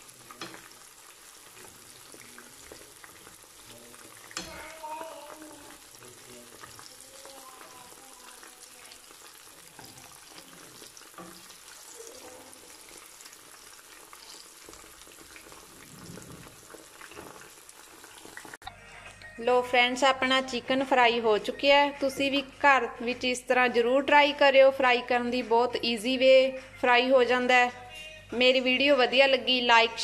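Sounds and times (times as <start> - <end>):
chicken sizzling in hot oil: 0.0 - 18.6
spoon turning food in pan: 0.0 - 18.8.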